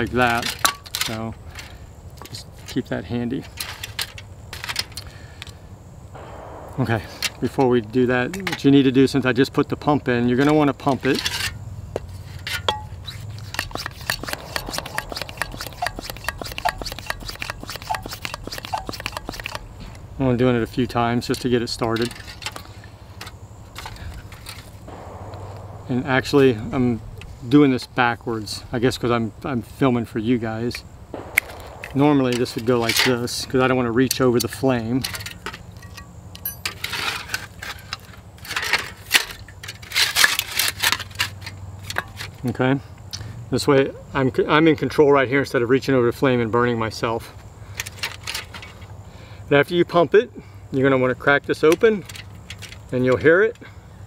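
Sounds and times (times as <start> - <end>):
hand pump clicking and rubbing: 15.0 - 19.6
metal wire legs clinking: 35.8 - 37.0.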